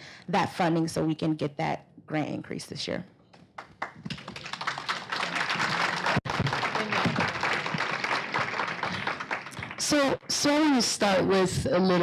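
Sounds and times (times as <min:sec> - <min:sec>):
crowd clapping: 0:03.6 - 0:10.4.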